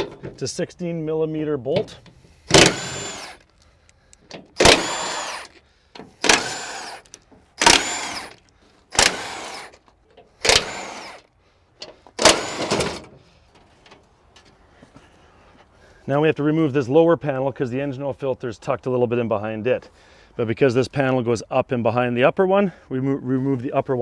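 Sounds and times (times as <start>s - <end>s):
impact gun motor whine: 2.5s - 3.4s, 4.6s - 5.6s, 6.2s - 9.8s, 10.4s - 11.3s, 12.2s - 13.1s.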